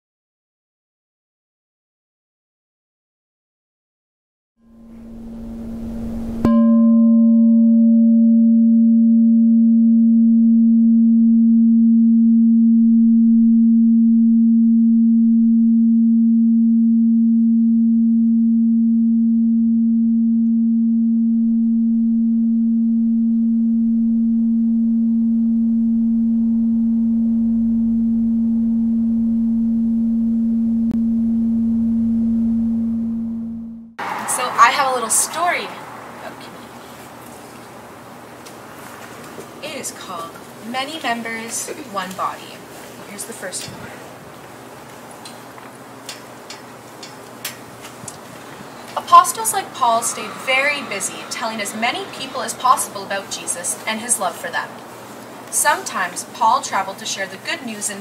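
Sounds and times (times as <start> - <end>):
singing bowl ringing: 4.7 - 33.7.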